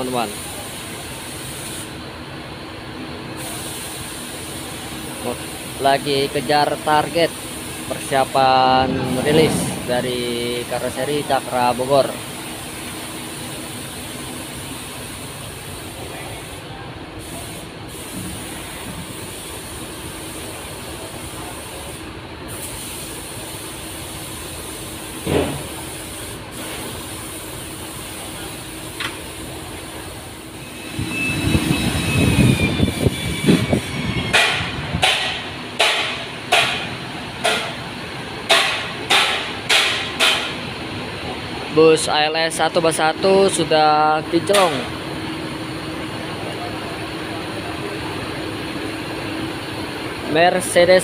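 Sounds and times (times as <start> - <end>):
steady background hum: 0.0 - 51.0
sharp hissing strikes: 5.2 - 13.2, 22.6 - 37.9, 38.5 - 40.6
low rumble: 8.6 - 11.6.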